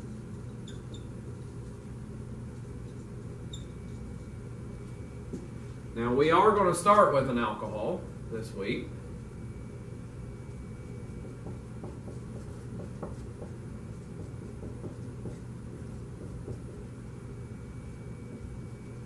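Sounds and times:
low room hum: 0:00.0 - 0:19.0
marker scratching on whiteboard: 0:11.2 - 0:16.9.

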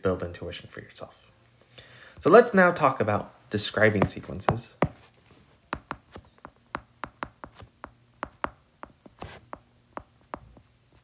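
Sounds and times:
stylus tapping on glass screen: 0:05.8 - 0:09.0.

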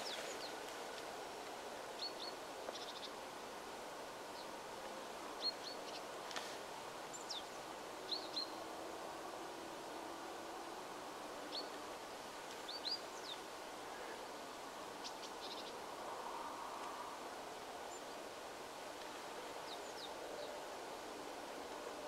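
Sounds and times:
outdoor background hiss: 0:00.0 - 0:22.0
small birds chirping: 0:02.0 - 0:03.2.

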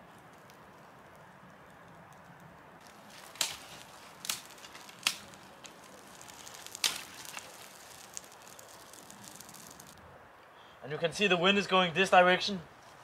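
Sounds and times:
fire popping: 0:00.0 - 0:10.0
campfire hissing and crackling: 0:00.0 - 0:10.2.

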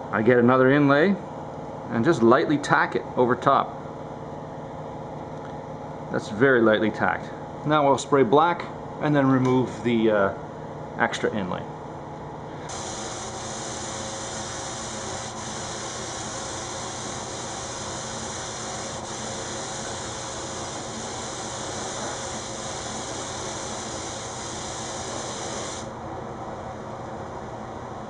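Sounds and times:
spray gun hissing: 0:12.7 - 0:26.0.

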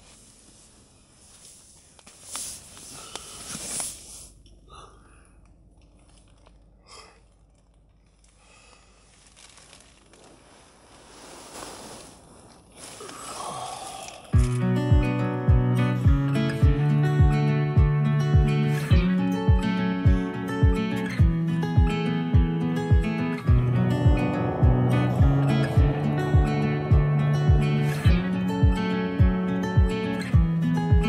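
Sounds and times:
fabric or plastic rustling: 0:00.0 - 0:04.3, 0:08.0 - 0:13.3
acoustic guitar music: 0:14.4 - 0:31.0.

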